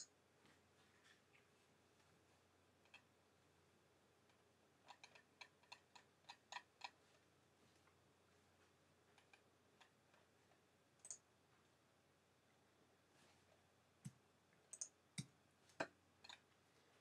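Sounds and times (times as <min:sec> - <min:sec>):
computer mouse and keyboard clicks: 0:04.9 - 0:07.0, 0:14.7 - 0:15.0.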